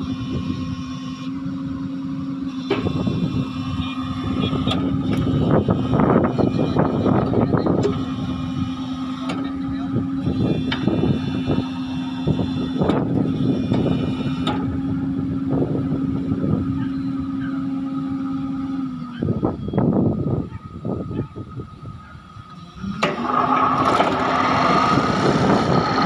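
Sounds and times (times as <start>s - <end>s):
steady mechanical tone: 0.0s - 26.0s
rattling machine noise: 1.6s - 18.6s, 22.6s - 26.0s.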